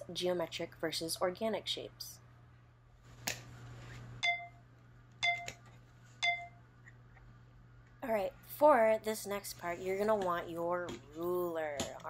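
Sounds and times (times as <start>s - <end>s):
plastic ruler tapping with ringing tone: 5.2s - 5.6s, 6.2s - 6.5s.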